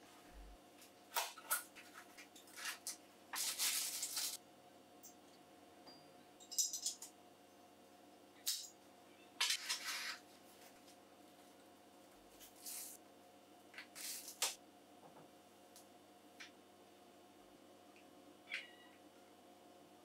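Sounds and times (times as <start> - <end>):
cardboard packaging rustling: 1.8 - 4.4.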